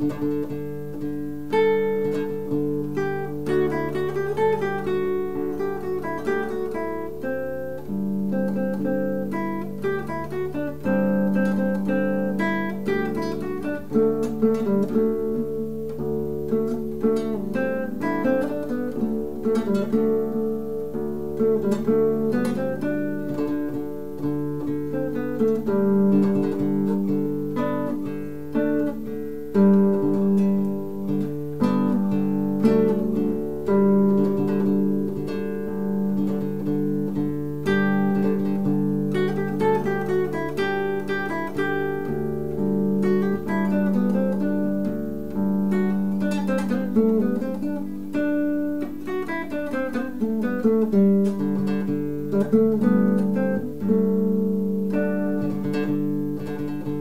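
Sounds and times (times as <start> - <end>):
classical guitar fingerstyle: 0.0 - 57.0.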